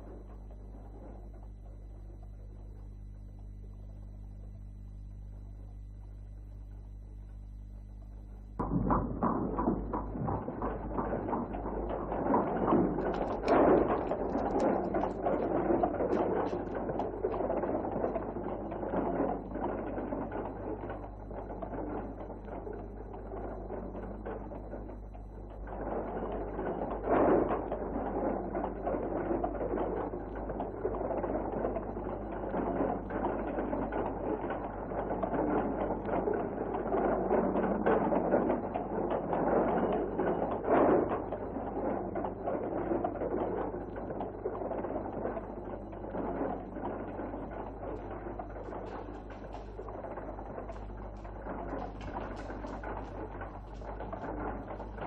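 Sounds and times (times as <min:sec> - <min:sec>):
hooves clip-clopping: 0:00.0 - 0:55.0
carriage wheels rattling: 0:25.6 - 0:55.0.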